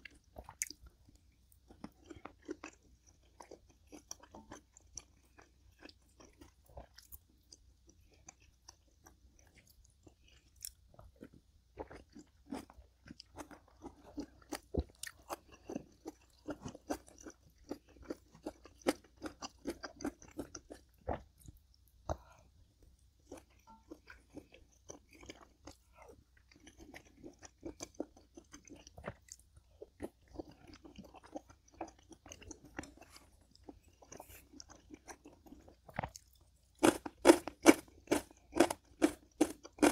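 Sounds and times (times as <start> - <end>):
person chewing crunchy food: 0.0 - 39.9.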